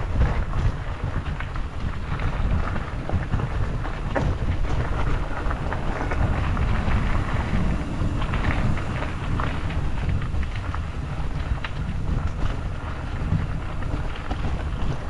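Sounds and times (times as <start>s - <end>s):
bike tyres crunching on gravel: 0.0s - 15.0s
wind buffeting microphone: 0.0s - 15.0s.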